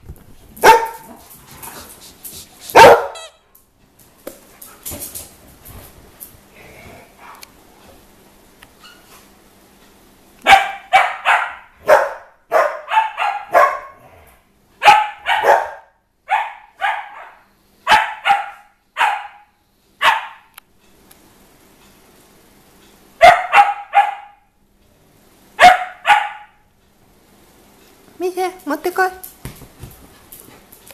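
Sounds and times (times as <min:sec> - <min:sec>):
dog barking: 0:00.6 - 0:01.1, 0:02.7 - 0:03.3, 0:10.4 - 0:14.0, 0:14.8 - 0:20.5, 0:23.2 - 0:24.5, 0:25.6 - 0:26.6.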